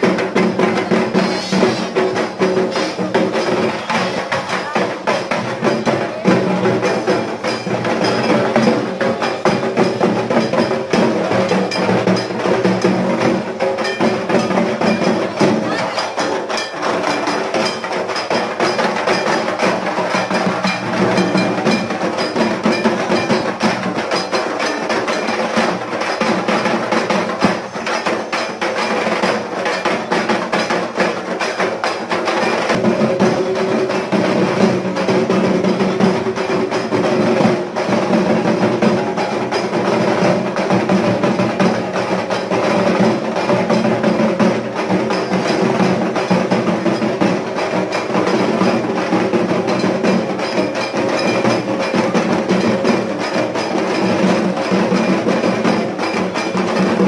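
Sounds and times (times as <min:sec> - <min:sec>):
rapid drumming: 0:00.0 - 0:57.0.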